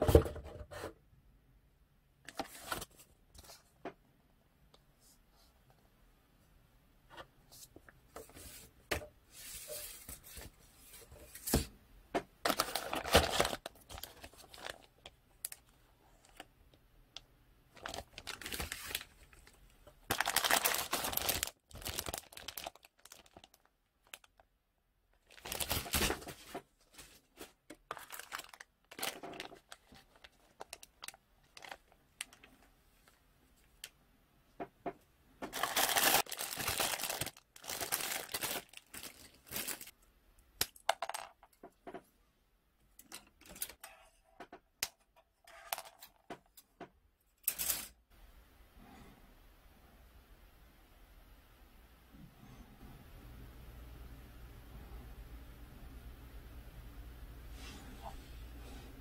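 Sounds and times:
paper and plastic rustling: 2.3s - 3.7s, 12.4s - 16.5s, 17.8s - 24.4s, 25.2s - 33.9s, 35.4s - 39.9s.

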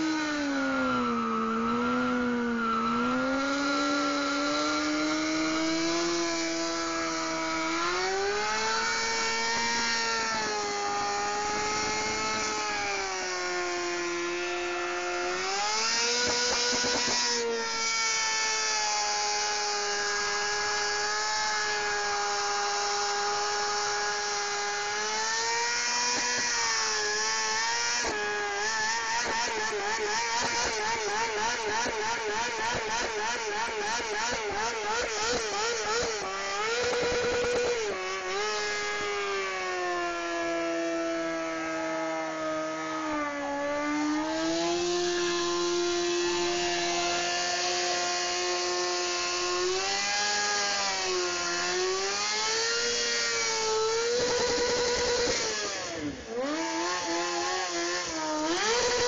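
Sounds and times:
motorcycle engine at high revs: 0.0s - 59.0s
spinning tyre hissing: 8.4s - 13.1s, 52.0s - 59.0s.

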